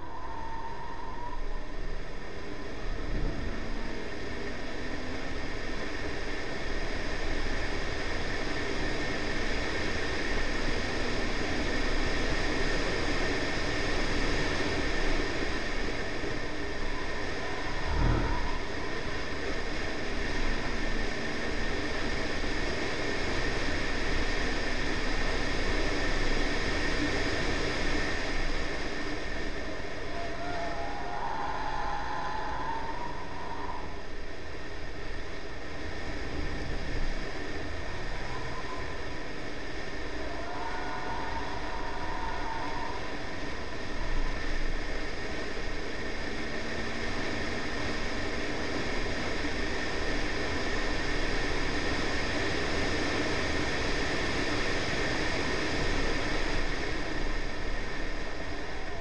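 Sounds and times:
wind noise: 0:00.0 - 0:59.0
car engine: 0:16.1 - 0:20.6.

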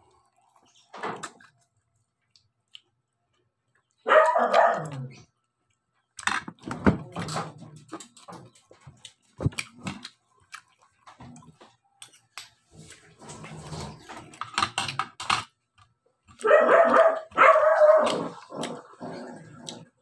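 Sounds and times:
dog barking and whining: 0:04.0 - 0:05.3, 0:16.4 - 0:19.0.

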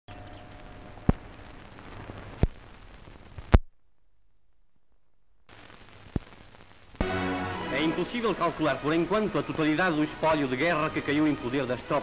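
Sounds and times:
film soundtrack hiss: 0:00.1 - 0:12.0
sharp pops: 0:01.0 - 0:02.6, 0:05.5 - 0:07.1.

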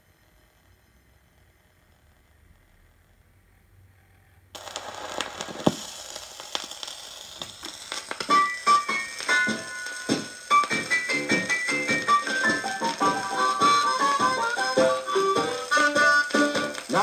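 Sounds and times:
record surface hiss and crackle: 0:00.0 - 0:17.0
piano and harmonica music: 0:08.2 - 0:17.0.

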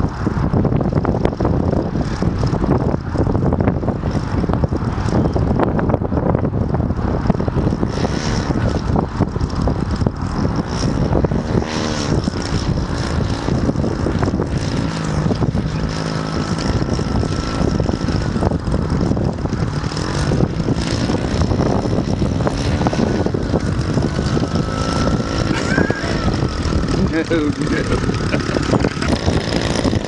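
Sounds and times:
model airplane engine running: 0:00.0 - 0:30.0.

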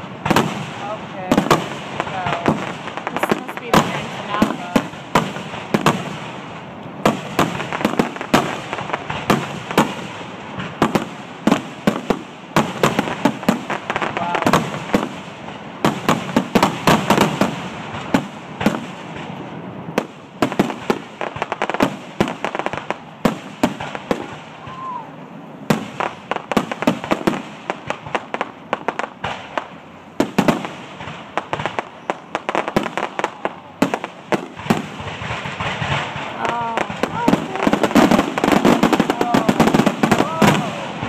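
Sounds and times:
fireworks bangs and crackles: 0:00.0 - 0:41.0.

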